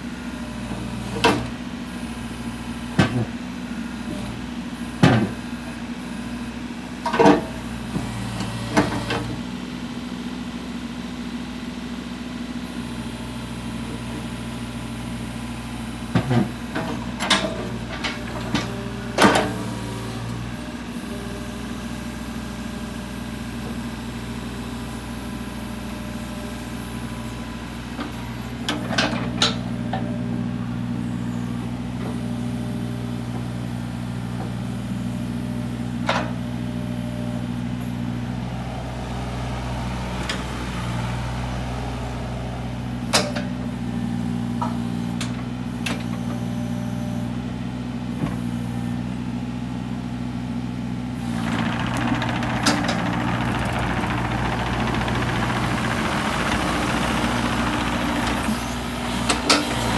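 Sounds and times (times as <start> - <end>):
excavator diesel engine running: 0.0 - 59.9
sharp machine clunks: 51.4 - 58.6.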